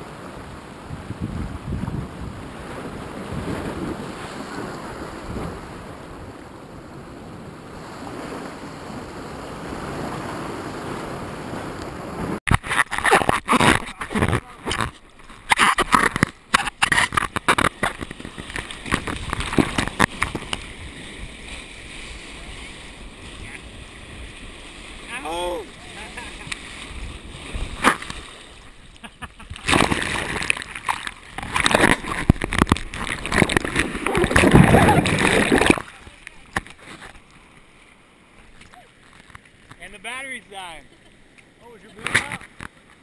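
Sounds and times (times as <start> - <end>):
wind noise: 0.0 - 37.2
ocean surf: 0.0 - 43.0
waves splashing over camera: 0.0 - 43.0
whitewater rushing: 15.4 - 28.9, 29.5 - 36.7.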